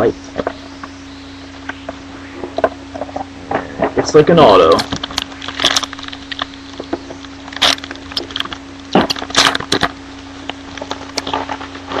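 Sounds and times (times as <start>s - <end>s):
faint steady hum: 0.0s - 12.0s
foil wrapper crinkling: 4.7s - 12.0s.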